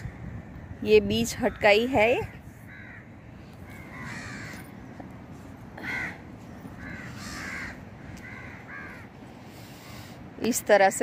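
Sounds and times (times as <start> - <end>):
crows cawing: 2.7 - 4.7, 5.8 - 6.2, 6.8 - 9.2.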